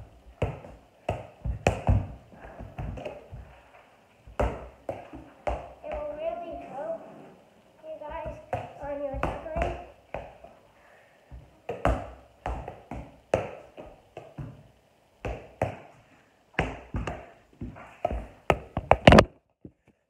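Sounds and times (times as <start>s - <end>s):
soccer ball thudding off feet: 0.3s - 3.6s, 4.3s - 6.1s, 8.2s - 10.4s, 11.3s - 14.6s, 15.2s - 15.9s, 16.6s - 19.3s.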